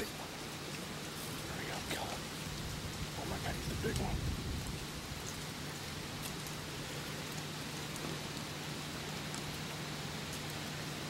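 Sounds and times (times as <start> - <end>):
background hiss: 0.0 - 11.0
faint ticks: 5.2 - 10.8.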